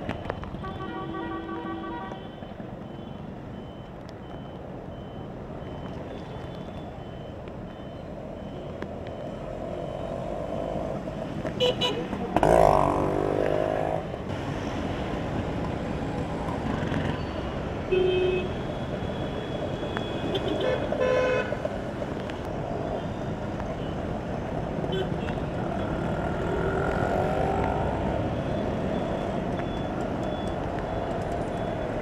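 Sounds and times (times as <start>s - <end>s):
vehicle horns honking: 0.6s - 2.4s, 11.6s - 12.1s, 17.9s - 18.6s, 20.2s - 21.6s
motorcycle engines: 1.7s - 32.0s.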